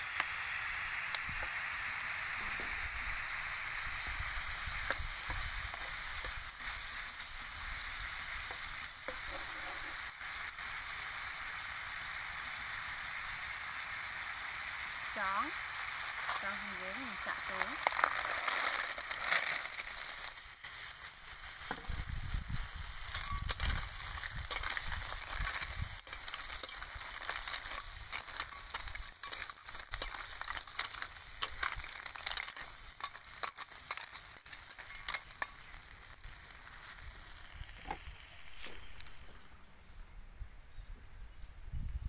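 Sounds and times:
snails sizzling in a pan: 0.0s - 39.7s
shells clicking and clattering: 23.1s - 35.7s.

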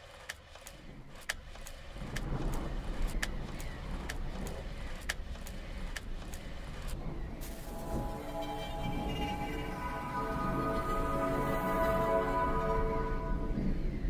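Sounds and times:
sharp crackle-like clicks: 0.2s - 7.0s
low rumbling ambient drone: 5.6s - 14.0s.

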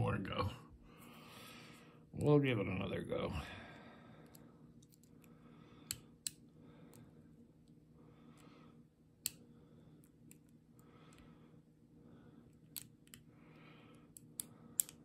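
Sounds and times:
lock pick metallic clicks: 14.2s - 15.0s.

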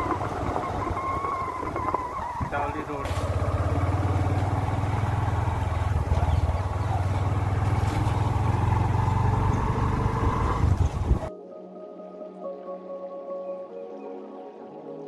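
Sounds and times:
motorcycle engine running: 0.0s - 11.3s.

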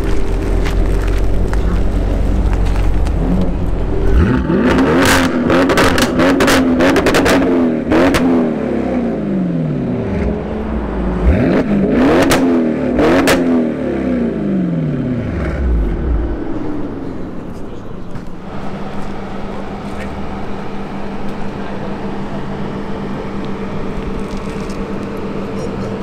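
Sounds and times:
exhaust crackles and pops: 0.0s - 8.3s, 23.3s - 26.0s
car engine revving: 0.0s - 26.0s.

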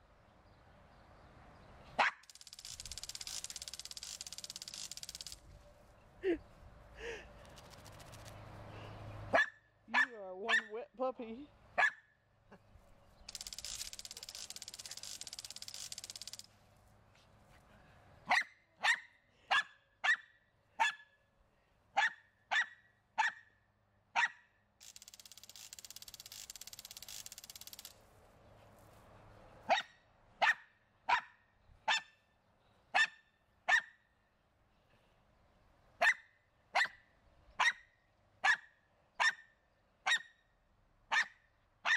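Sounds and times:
small dog barking: 2.0s - 2.2s, 9.3s - 10.8s, 11.8s - 12.0s, 18.3s - 21.0s, 22.0s - 23.5s, 24.2s - 24.4s, 29.7s - 32.1s, 33.0s - 34.0s, 36.0s - 36.2s, 37.6s - 37.8s, 38.4s - 39.4s, 40.1s - 40.3s, 41.1s - 41.9s
garden sprinkler spraying and ticking: 2.2s - 5.5s, 7.4s - 8.6s, 13.2s - 16.6s, 24.8s - 28.2s.

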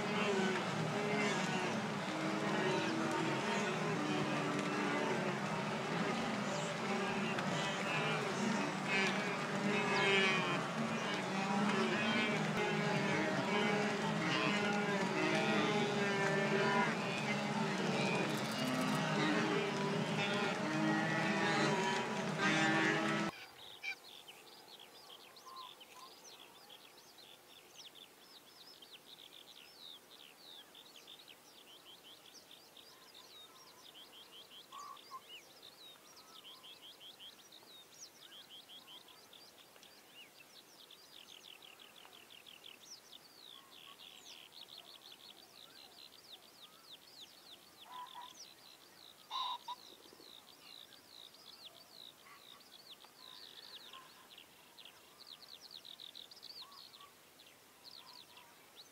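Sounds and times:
small birds chirping: 0.0s - 23.3s
faint open-air hiss: 0.0s - 58.9s
lower bird calls: 49.3s - 50.2s.

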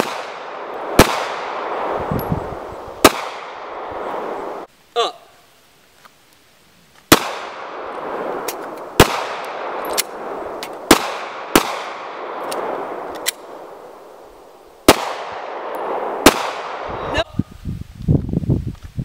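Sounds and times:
pistol shots with echo: 0.0s - 2.0s, 3.0s - 4.3s, 7.1s - 13.3s, 14.9s - 16.9s.

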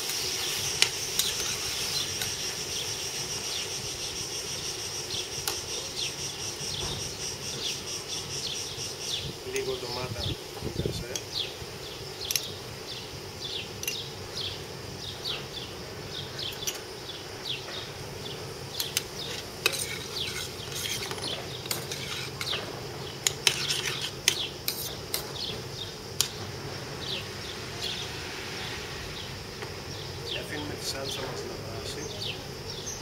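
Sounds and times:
faint sizzle: 0.0s - 33.0s
metal spoon stirring sauce: 19.2s - 22.6s, 23.2s - 25.0s.

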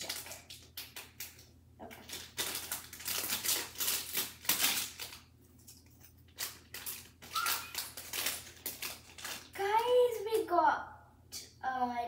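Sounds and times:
plastic packet crinkling and tearing: 0.0s - 5.3s, 6.2s - 10.0s.

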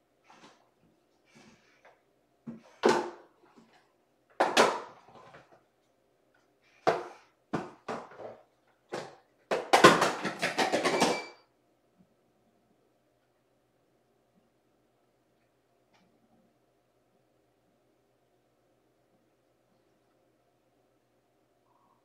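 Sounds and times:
plastic toy knocking and clattering: 8.9s - 11.4s.

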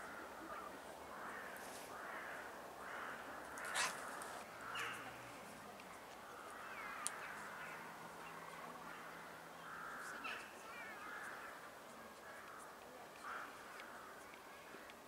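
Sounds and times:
crow cawing: 0.0s - 5.1s, 8.9s - 11.6s, 12.3s - 14.2s
small birds chirping: 0.0s - 15.0s.

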